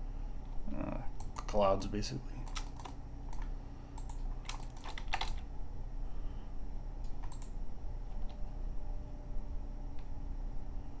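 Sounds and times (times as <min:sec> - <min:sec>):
steady low hum: 0:00.0 - 0:11.0
keyboard and mouse clicks: 0:01.2 - 0:01.6, 0:02.4 - 0:05.5, 0:07.0 - 0:08.4.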